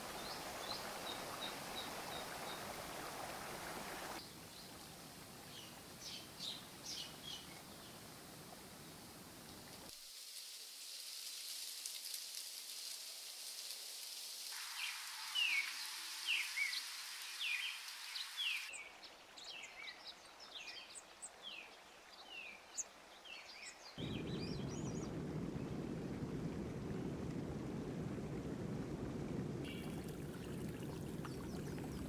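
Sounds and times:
steady high hiss: 0.0 - 18.8
bird chirping: 23.4 - 25.2
steady rushing noise: 24.0 - 30.3.

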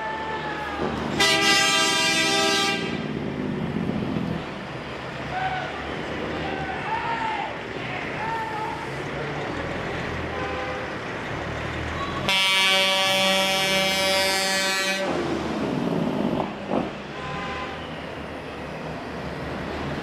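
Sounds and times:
diesel truck engine rumble: 0.0 - 20.0
truck air horn blast: 1.2 - 3.0, 12.3 - 15.2.

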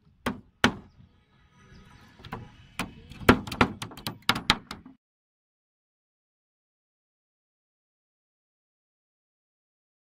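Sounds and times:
hammer driving nails into wood: 3.2 - 4.9.

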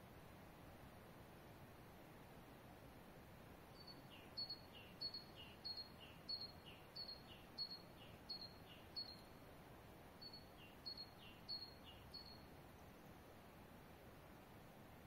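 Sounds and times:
faint steady hiss: 0.0 - 15.0
small bird chirping: 3.7 - 9.4, 10.2 - 13.2.

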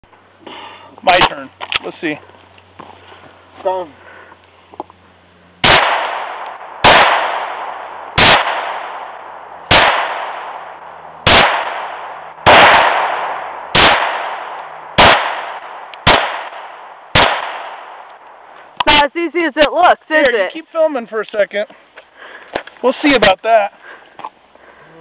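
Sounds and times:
pistol shots with echo: 5.6 - 18.1.

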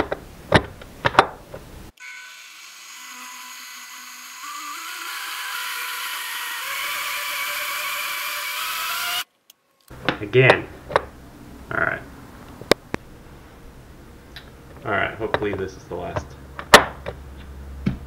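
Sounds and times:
blender motor whining: 2.0 - 9.3.

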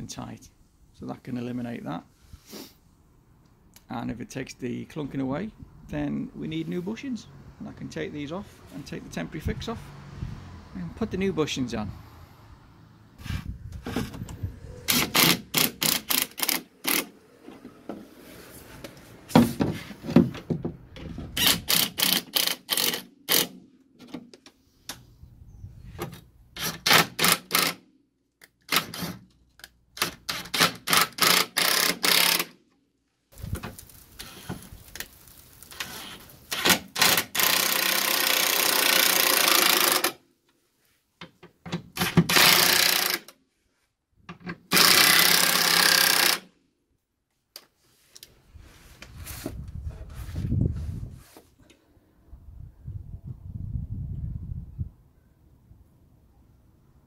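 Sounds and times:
impact wrench hammering bolts: 14.9 - 17.1, 30.0 - 32.6, 36.5 - 40.2, 41.8 - 43.3, 44.5 - 46.5.

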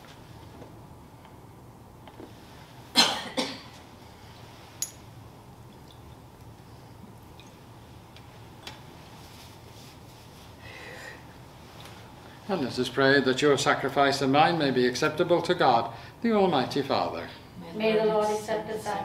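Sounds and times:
person coughing: 2.9 - 3.8.

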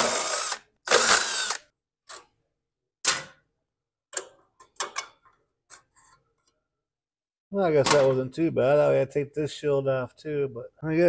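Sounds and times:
clicks and knocks of parts: 4.1 - 6.5.

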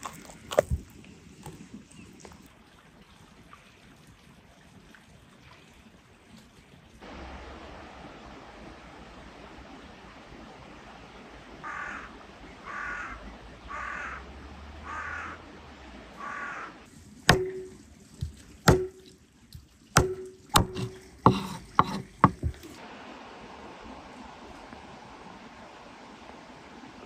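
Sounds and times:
crow cawing: 11.6 - 14.2, 14.8 - 15.4, 16.2 - 16.8
knife chopping on cutting board: 17.3 - 19.0, 20.0 - 22.7.

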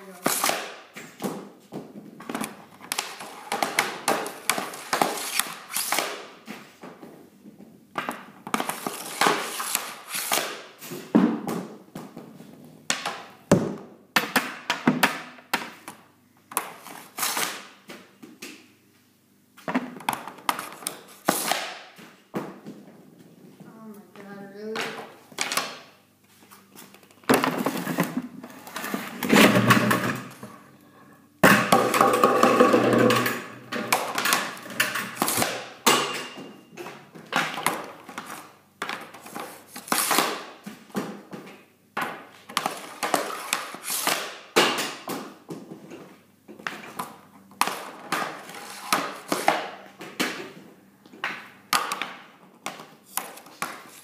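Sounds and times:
hockey stick slapping puck: 0.2 - 1.5, 2.3 - 6.7, 8.0 - 11.8, 12.9 - 18.6, 19.7 - 22.5, 31.4 - 36.5, 37.3 - 45.7, 46.6 - 50.6, 51.2 - 54.0.

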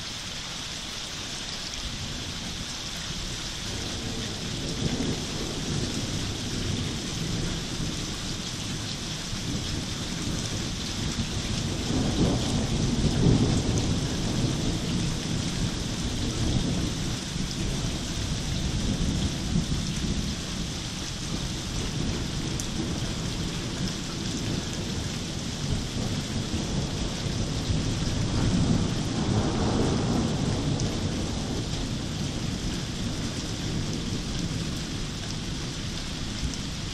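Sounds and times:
heavy rain: 0.0 - 36.9
thunder rolling: 21.9 - 35.1.

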